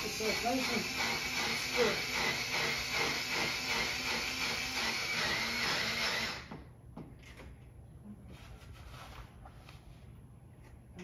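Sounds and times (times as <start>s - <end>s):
cordless drill driving screw: 0.0s - 6.6s.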